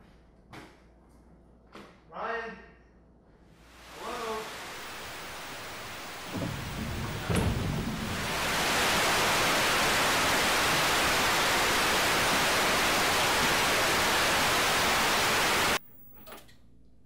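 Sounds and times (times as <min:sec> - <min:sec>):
television static hiss: 0:03.6 - 0:16.3.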